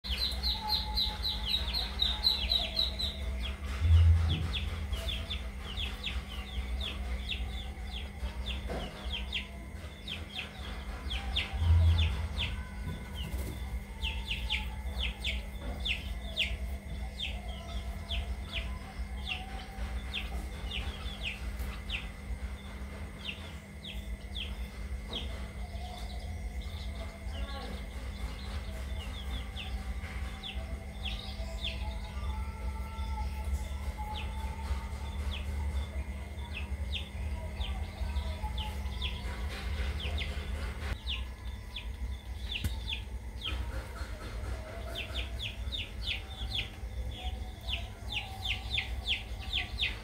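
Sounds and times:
birds chirping: 0.0s - 50.0s
steady low hum: 0.0s - 50.0s.

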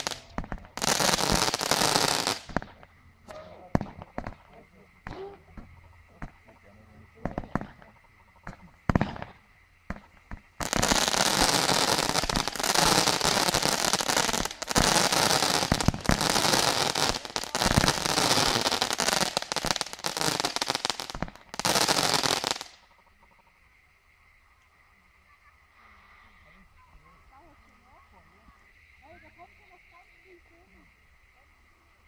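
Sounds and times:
fireworks bangs: 0.0s - 6.6s, 7.2s - 22.9s
fireworks crackling: 0.0s - 23.0s.

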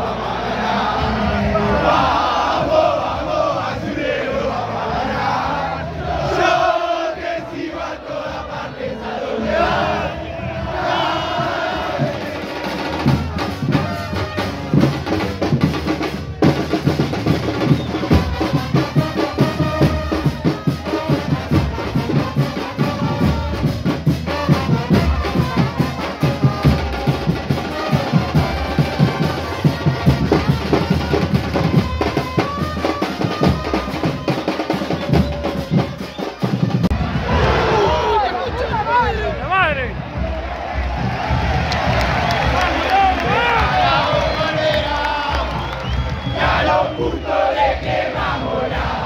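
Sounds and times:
football supporters chanting: 0.0s - 14.8s, 17.8s - 49.0s
bass and snare drums pounding: 0.8s - 49.0s.

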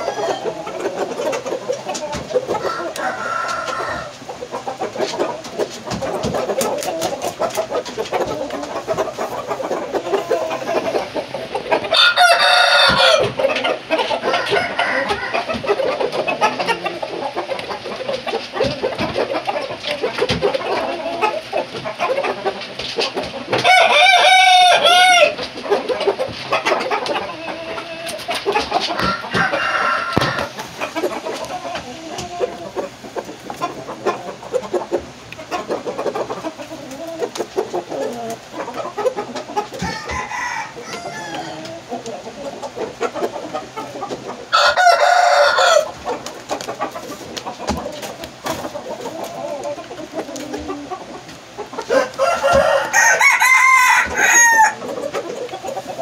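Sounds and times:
rooster crowing: 0.0s - 0.6s, 2.6s - 4.1s, 11.9s - 13.4s, 14.2s - 15.6s, 23.6s - 25.4s, 29.0s - 30.6s, 39.8s - 41.8s, 44.5s - 46.0s, 51.9s - 54.8s
hens clucking: 0.0s - 56.0s.

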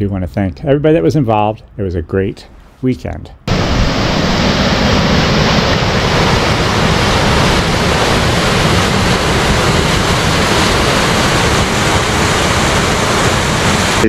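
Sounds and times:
water gushing into stream: 3.5s - 14.0s.

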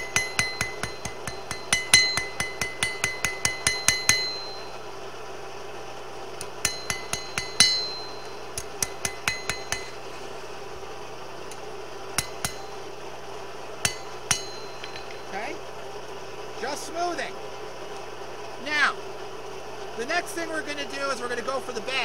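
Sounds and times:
hammer ringing on steel blade: 0.0s - 4.9s, 6.5s - 10.0s, 12.2s - 12.9s, 13.8s - 15.3s.

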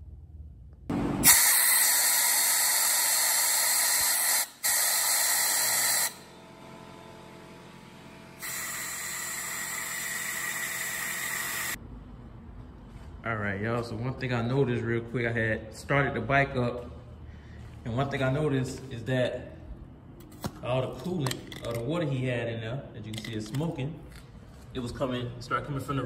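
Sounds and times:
pressurised spray hissing: 1.2s - 6.2s, 8.4s - 11.8s.

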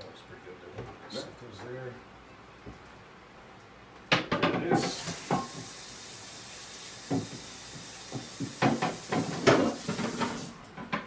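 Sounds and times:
dishes clattering at sink: 4.1s - 5.8s, 8.1s - 11.0s
tap running: 4.1s - 5.8s, 7.0s - 11.0s.

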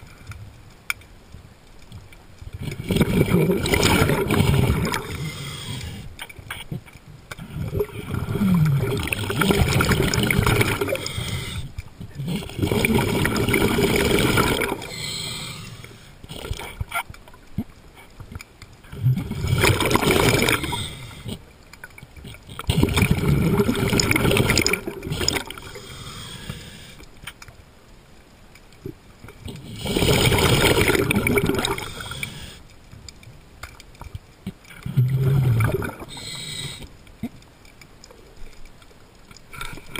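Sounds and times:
underwater water noise: 0.0s - 39.9s
underwater breathing bubbles: 2.6s - 17.0s, 18.8s - 21.5s, 22.2s - 27.1s, 29.4s - 32.7s, 34.7s - 37.0s.

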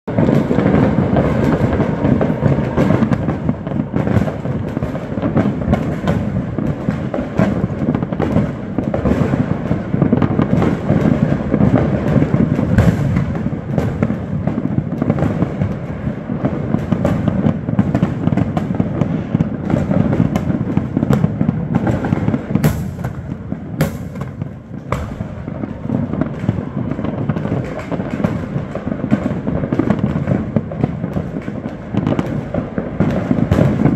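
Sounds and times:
fireworks popping and banging: 0.0s - 33.9s.

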